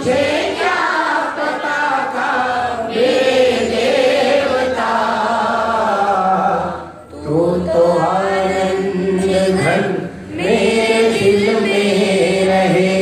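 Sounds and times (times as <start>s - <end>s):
man singing devotional song: 4.6s - 13.0s.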